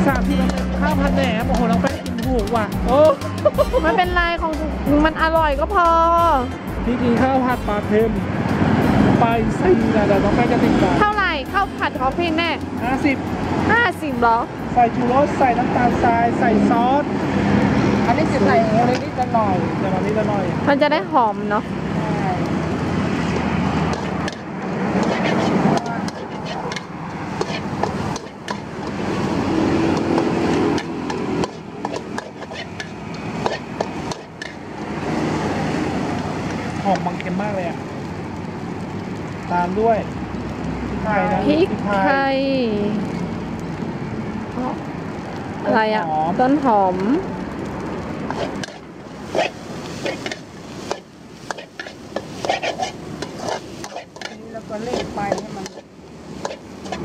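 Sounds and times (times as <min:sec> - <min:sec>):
food sizzling: 0:00.0 - 0:57.0
vehicle passing rumble: 0:00.0 - 0:57.0
metal spatula scraping wok: 0:23.2 - 0:35.3, 0:48.3 - 0:57.0.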